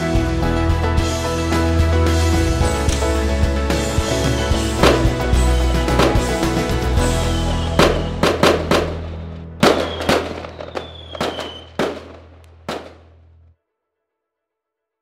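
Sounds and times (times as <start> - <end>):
firework falling whistle: 4.2 - 9.0, 9.6 - 12.2
firework bangs echoing: 4.8 - 6.9, 7.6 - 13.2.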